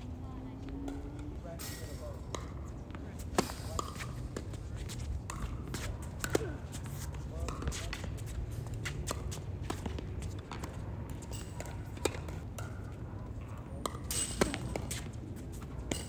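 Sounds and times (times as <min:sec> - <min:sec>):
tennis ball bounces: 0:02.2 - 0:16.0
racket striking ball: 0:03.2 - 0:04.6, 0:08.8 - 0:12.8, 0:13.8 - 0:15.1.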